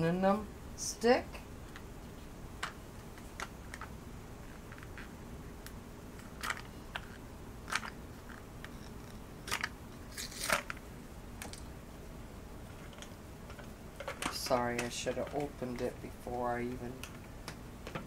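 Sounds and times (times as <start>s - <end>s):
wrapper crinkling and crackling: 6.2s - 10.8s.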